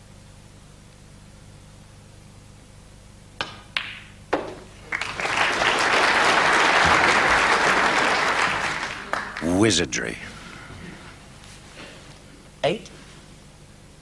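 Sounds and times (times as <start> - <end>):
snooker balls knocking: 3.4 - 4.8
crowd applause: 4.8 - 9.8.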